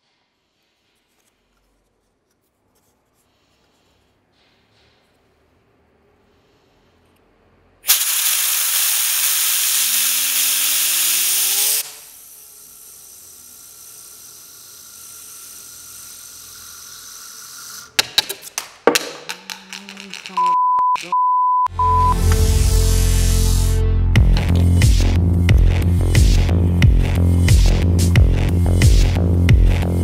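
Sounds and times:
compressed air hissing: 7.8s - 18.0s, 22.3s - 23.8s.

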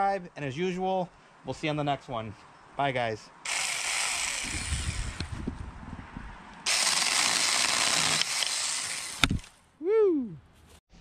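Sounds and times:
mini chainsaw cutting sapling: 3.4s - 5.4s, 6.6s - 9.6s.

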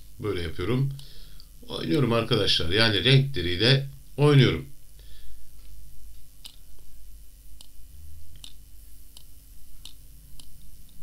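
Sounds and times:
computer mouse clicking: 6.4s - 6.8s, 7.6s - 11.0s.

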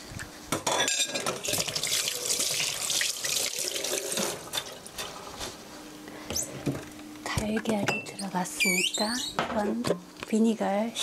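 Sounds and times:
tap water running into sink: 1.4s - 4.8s.

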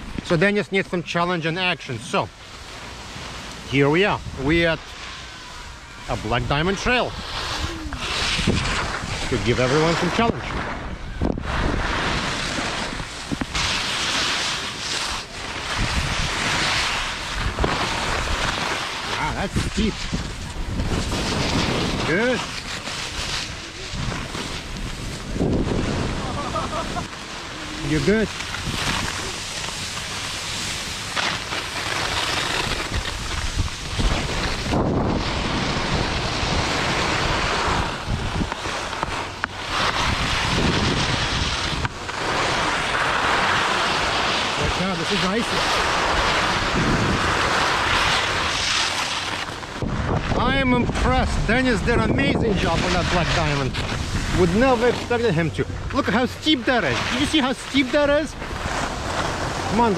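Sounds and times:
skis hissing over snow: 1.2s - 59.9s
wind buffeting microphone: 6.3s - 13.6s, 19.2s - 29.6s, 32.6s - 42.2s, 44.6s - 48.6s, 49.7s - 56.0s.

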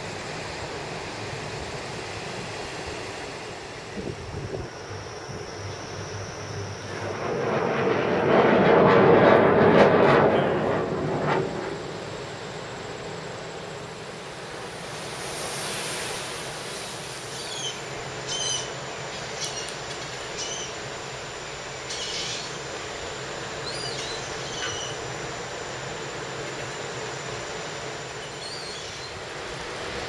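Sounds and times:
outdoor background noise: 0.0s - 30.0s
loud rumble: 6.6s - 12.4s.

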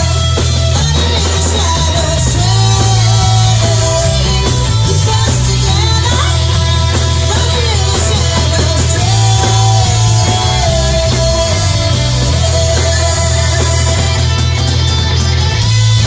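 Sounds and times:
drums: 0.0s - 16.0s
electric guitar: 0.0s - 16.0s
loud bass: 0.0s - 16.0s.

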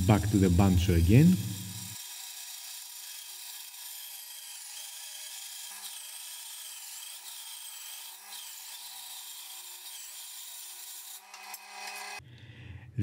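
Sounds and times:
bandsaw cutting wood: 0.0s - 12.2s.

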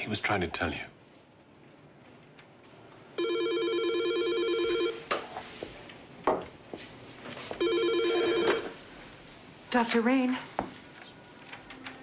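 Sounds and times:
telephone trilling ring: 3.2s - 5.0s, 7.6s - 8.8s.

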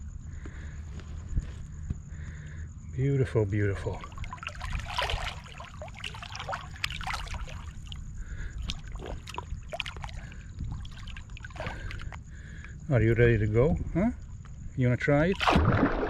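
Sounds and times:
shallow water splashing: 3.8s - 12.6s, 15.2s - 16.0s.

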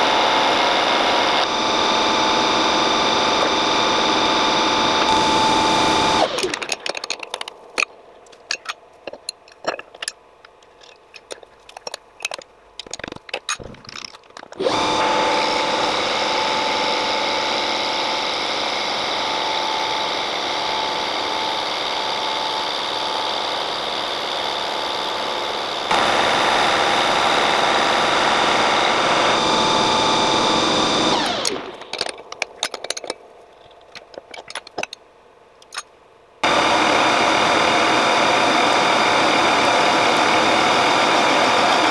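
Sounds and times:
lathe motor whining: 0.0s - 7.2s, 14.6s - 32.4s, 36.4s - 41.9s
metal tools clinking: 6.2s - 14.6s, 31.2s - 35.0s, 35.6s - 35.9s.

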